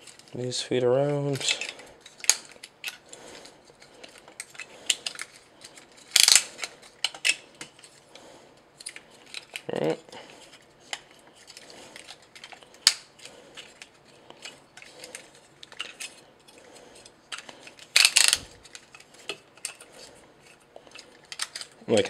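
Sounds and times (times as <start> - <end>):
plastic toy parts clicking: 1.4 - 3.1, 4.0 - 7.9, 8.8 - 9.7, 17.3 - 19.9, 20.9 - 22.0.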